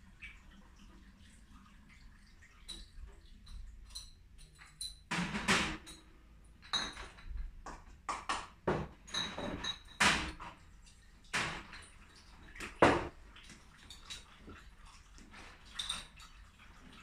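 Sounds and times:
glass bottles clinking: 5.7s - 7.5s, 8.7s - 10.4s, 15.6s - 16.3s.

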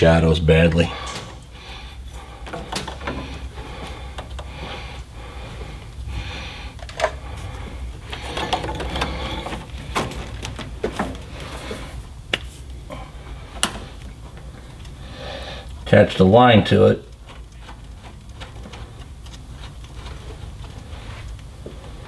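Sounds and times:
low steady hum: 0.0s - 22.0s
metal tools and fittings clinking: 8.1s - 10.6s.

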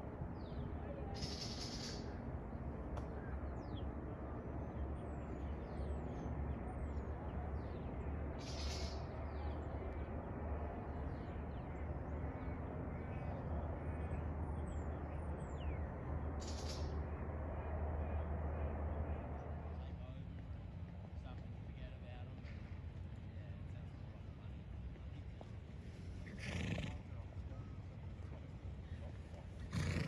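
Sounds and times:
birds chirping and calling: 1.1s - 2.2s, 8.4s - 9.2s, 16.4s - 17.0s.

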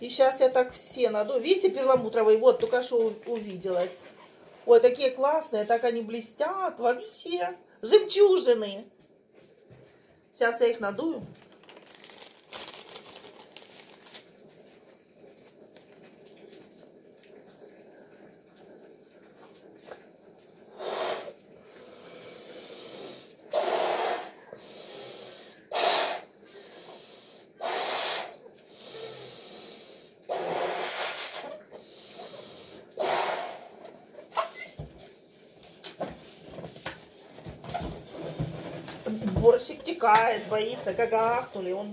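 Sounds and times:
breaths blown into balloon: 22.0s - 34.5s.

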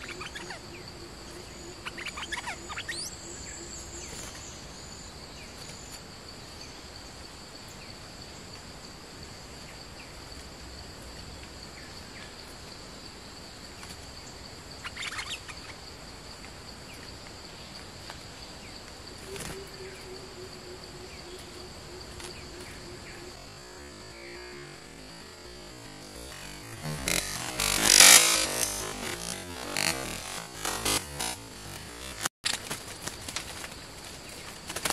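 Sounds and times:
bird chirps: 0.0s - 4.9s
insect buzzing drone: 0.0s - 34.9s.

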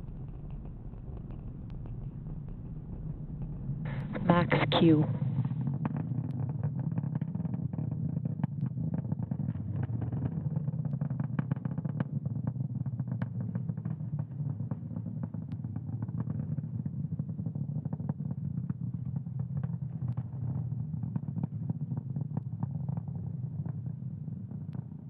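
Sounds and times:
rocket engine rumble with crackles: 0.0s - 25.0s.

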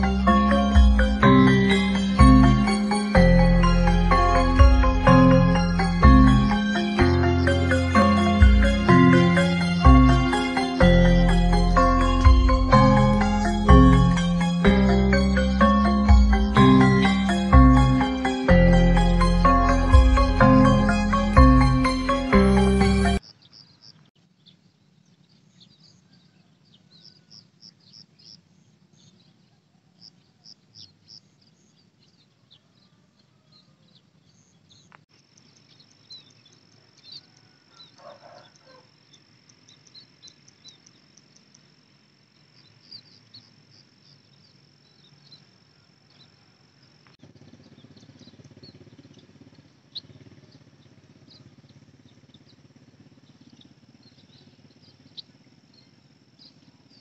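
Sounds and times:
small birds chirping: 0.0s - 22.0s, 23.1s - 57.0s
low rumble: 0.0s - 23.2s
high insect trill: 35.1s - 47.2s.

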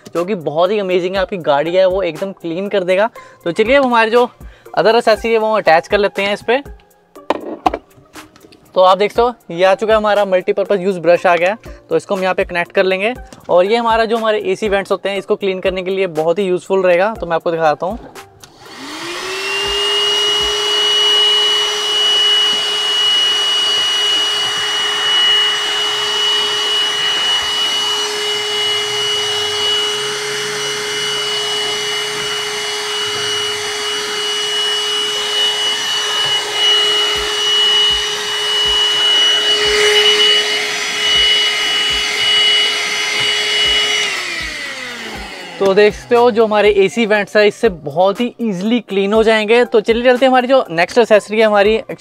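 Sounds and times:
handheld vacuum cleaner running: 18.4s - 47.4s.

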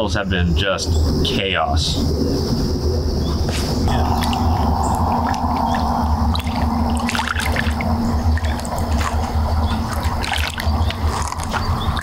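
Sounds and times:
steady low rumble: 0.0s - 12.0s
water splashing and trickling: 3.9s - 12.0s.

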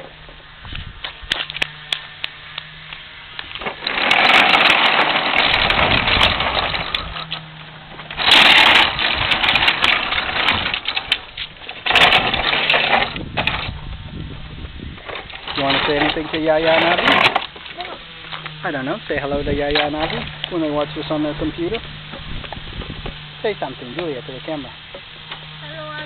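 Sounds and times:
plastic wheels rattling on asphalt: 3.4s - 18.0s.

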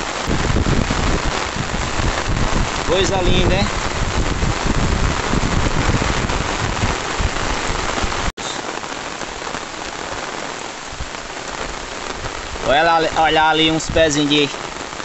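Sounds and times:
heavy rain pouring: 0.0s - 15.0s.

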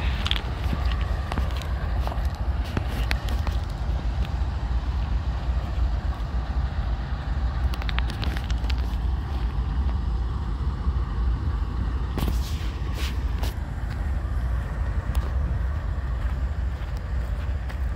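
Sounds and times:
diesel locomotives rumbling: 0.0s - 17.9s
wind buffeting microphone: 0.0s - 17.9s
brief clicks and crackle: 7.7s - 9.0s.

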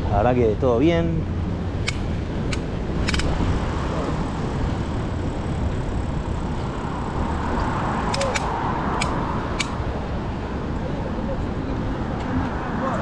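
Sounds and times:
wind and road noise: 0.0s - 13.0s
sharp clicks: 1.8s - 3.3s, 8.1s - 9.8s.

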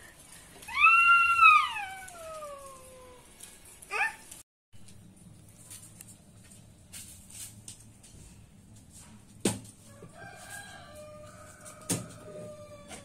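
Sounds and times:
rooster crowing: 9.9s - 13.0s.

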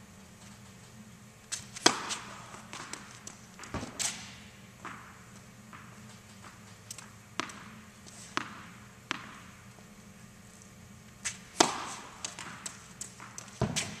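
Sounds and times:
racket striking tennis ball: 1.5s - 9.7s, 11.2s - 14.0s
tennis ball bouncing on court: 1.5s - 9.8s, 11.2s - 14.0s.

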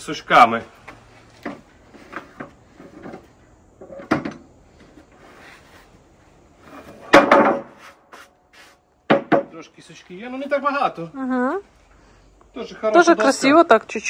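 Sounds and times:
clatter of wood: 0.8s - 4.5s, 6.8s - 7.8s
wooden boards knocking and scraping: 1.4s - 4.4s, 6.6s - 8.0s, 9.1s - 9.6s.

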